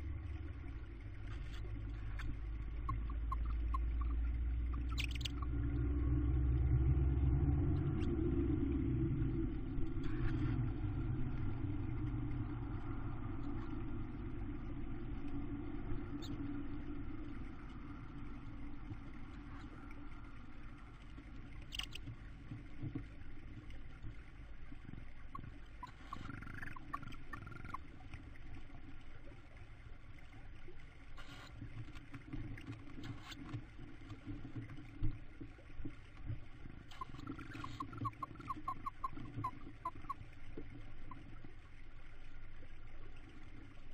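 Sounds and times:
low rumble: 0.0 - 29.6.

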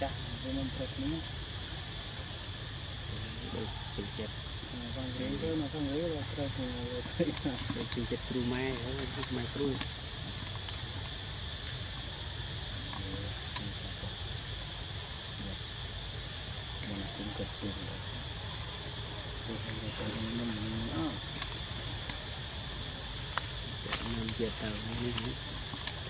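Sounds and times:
insect trill: 0.0 - 26.0
insects buzzing drone: 0.0 - 26.0.

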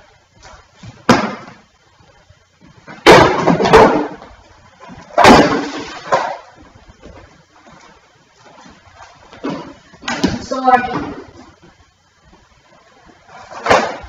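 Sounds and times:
loud bangs with clattering: 3.0 - 4.2, 5.1 - 6.4.

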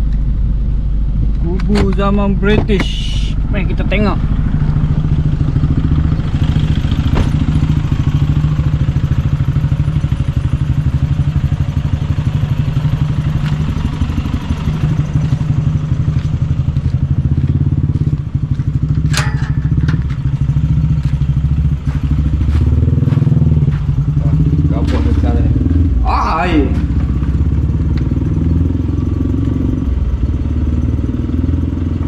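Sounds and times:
pickup engine running: 0.0 - 31.6
sharp knock: 7.0 - 7.7.

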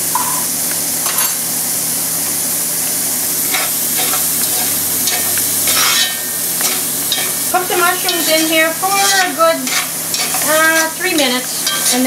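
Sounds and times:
food sizzling in hot fat: 0.0 - 12.0
spoon scraping a pot: 3.5 - 7.4, 8.0 - 12.0.

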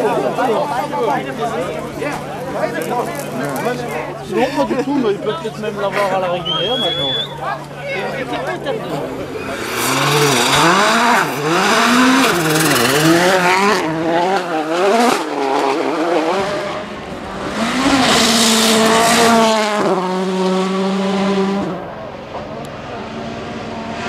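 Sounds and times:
rally car engine revving: 7.6 - 24.0.

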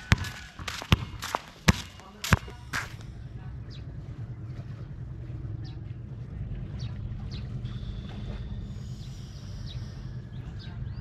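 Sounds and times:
sharp knocks or slaps: 0.0 - 2.9
steady low hum: 0.0 - 11.0.

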